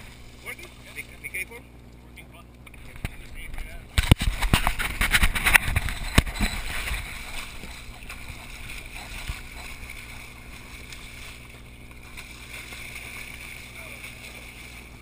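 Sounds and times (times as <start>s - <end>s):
boat engine hum: 0.0s - 15.0s
water sloshing against hull: 0.0s - 15.0s
fish splashing and knocking: 3.9s - 15.0s.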